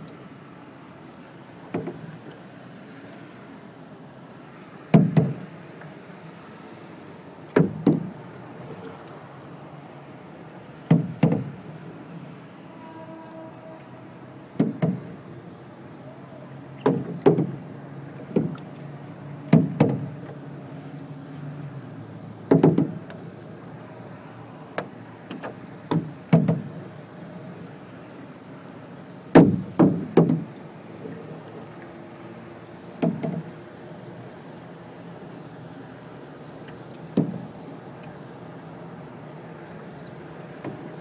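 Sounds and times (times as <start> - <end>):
paddle knocking against boat: 1.7 - 2.1, 4.9 - 5.5, 7.5 - 8.2, 10.9 - 11.6, 14.6 - 15.3, 16.8 - 17.6, 18.2 - 18.7, 19.4 - 20.4, 22.5 - 23.2, 24.8 - 26.8, 29.3 - 30.5, 33.0 - 33.5, 37.1 - 37.6, 40.6 - 41.0.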